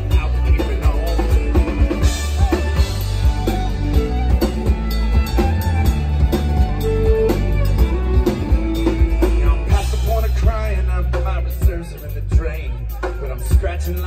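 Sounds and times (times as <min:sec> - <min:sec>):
fiddle: 0:00.0 - 0:10.2
strummed acoustic guitar: 0:00.0 - 0:11.7
steady drum beat: 0:00.0 - 0:14.0.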